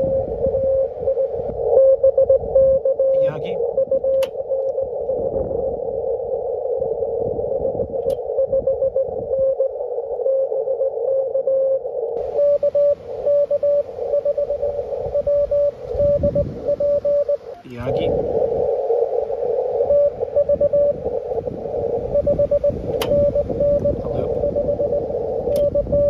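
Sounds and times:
morse code tone: 0:00.0 - 0:05.0, 0:07.5 - 0:18.2, 0:18.9 - 0:26.0
radio band hiss: 0:02.9 - 0:07.2, 0:11.9 - 0:26.0.

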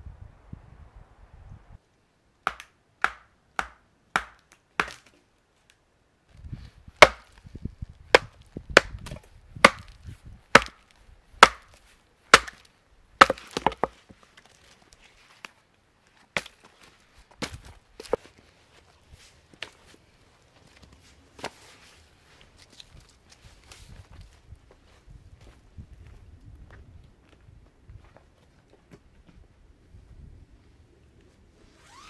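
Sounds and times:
knife chopping wood: 0:02.5 - 0:05.1, 0:07.0 - 0:07.4, 0:08.1 - 0:14.0.

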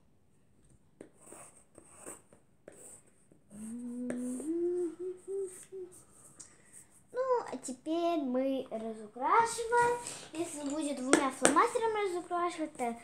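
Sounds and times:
pencil scratching on paper: 0:01.0 - 0:03.3
person humming: 0:03.5 - 0:06.1.

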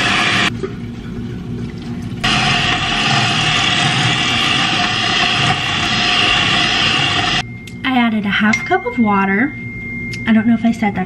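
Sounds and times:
electric hand mixer running: 0:00.0 - 0:00.5, 0:02.2 - 0:07.4.

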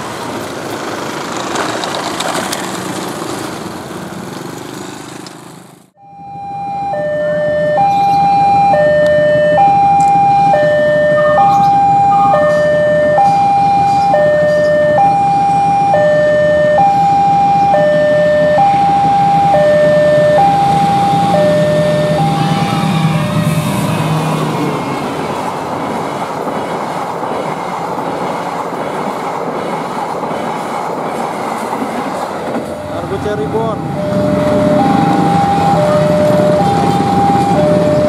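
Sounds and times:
diesel locomotive rumble: 0:00.0 - 0:38.0
level crossing alarm two tones: 0:06.0 - 0:24.3, 0:32.7 - 0:38.0.

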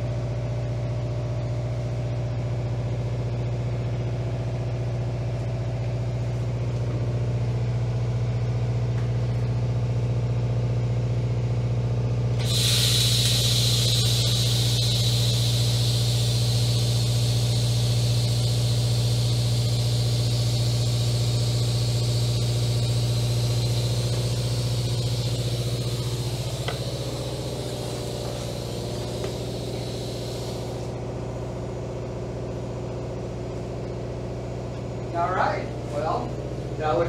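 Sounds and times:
electrical hum: 0:12.1 - 0:37.0
welding arc hissing: 0:12.4 - 0:31.1.

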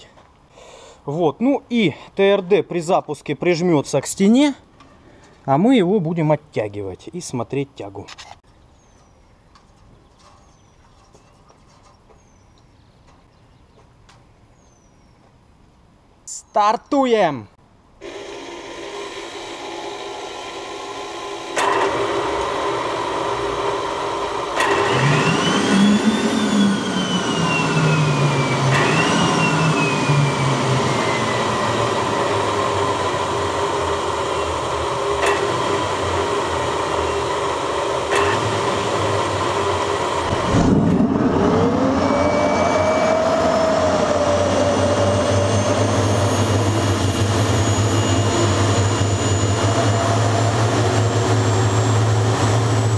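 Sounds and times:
small turbojet engine spooling up: 0:18.0 - 0:52.9
whining tones: 0:18.0 - 0:52.9.

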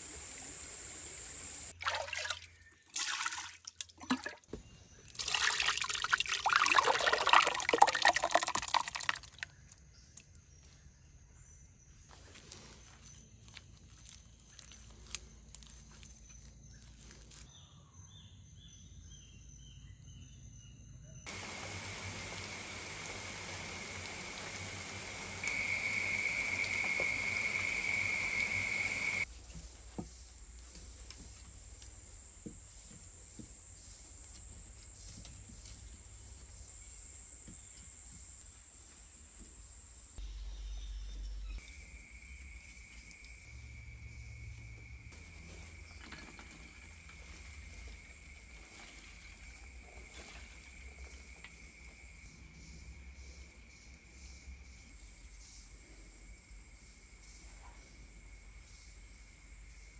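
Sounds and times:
insects chorus: 0:00.0 - 0:01.8, 0:21.3 - 0:59.9.

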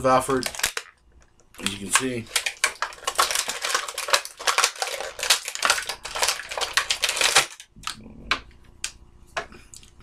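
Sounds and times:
plastic packaging crinkling: 0:00.0 - 0:07.8.

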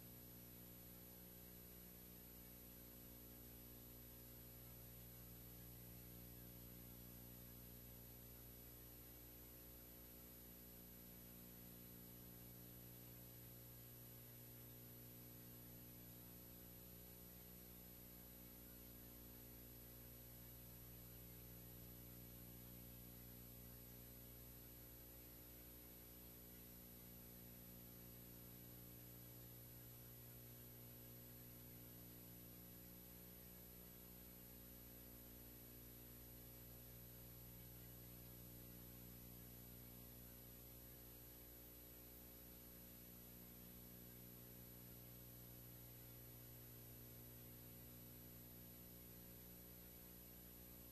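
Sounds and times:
faint hum with hiss: 0:00.0 - 0:50.9.

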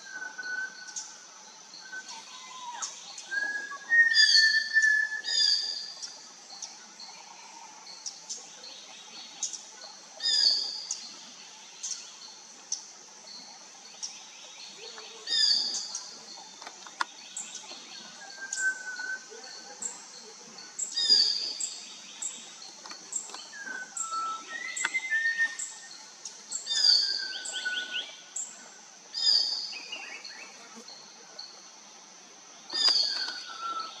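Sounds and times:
thrush whistling calls: 0:00.0 - 0:06.1, 0:18.1 - 0:19.8, 0:23.1 - 0:28.2, 0:32.7 - 0:34.0
steady high hiss: 0:00.0 - 0:34.0.

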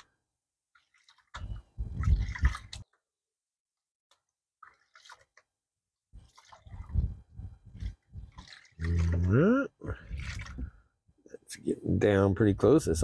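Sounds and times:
faint water drips: 0:00.7 - 0:03.0, 0:04.1 - 0:05.5, 0:06.2 - 0:07.1, 0:07.7 - 0:10.9
water sloshing in a pan: 0:00.7 - 0:03.0, 0:04.2 - 0:05.6, 0:06.2 - 0:09.4, 0:10.0 - 0:10.9.

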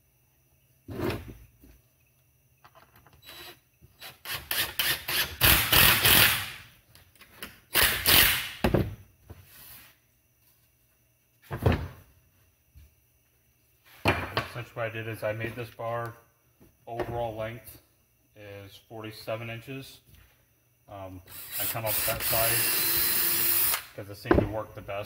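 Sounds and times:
drill driving screws into wood: 0:03.2 - 0:06.6, 0:07.7 - 0:08.6, 0:21.3 - 0:23.9.

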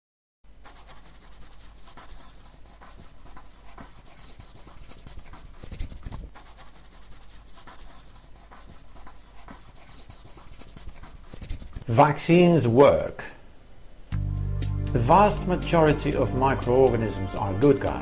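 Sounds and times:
marker scratching on surface: 0:00.6 - 0:12.0.

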